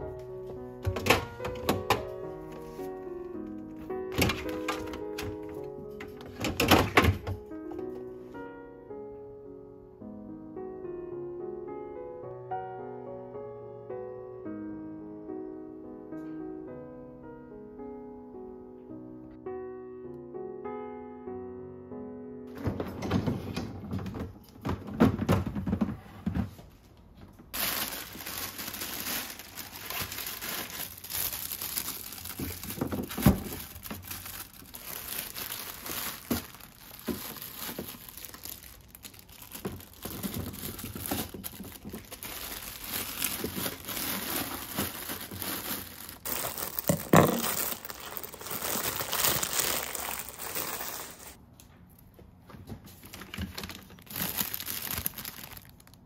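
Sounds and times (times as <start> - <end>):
plastic bags crinkling: 4.1 - 7.2, 27.5 - 51.4, 53.0 - 56.0.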